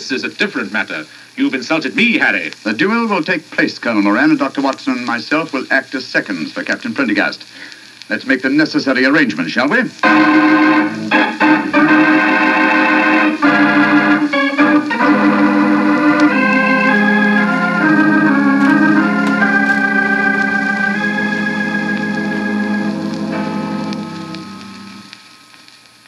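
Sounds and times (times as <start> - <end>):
organ playing held chords: 10.0 - 25.2.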